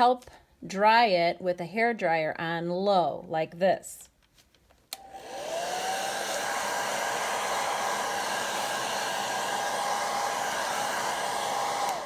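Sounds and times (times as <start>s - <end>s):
hair dryer running: 5.0s - 12.0s.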